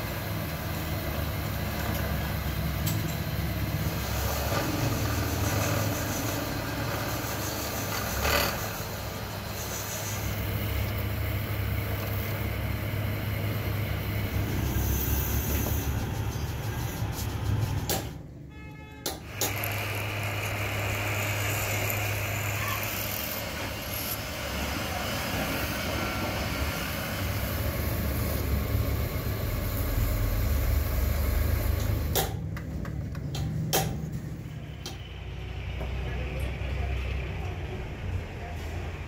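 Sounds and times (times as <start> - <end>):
drill press motor humming: 0.0 - 16.2, 19.2 - 32.2.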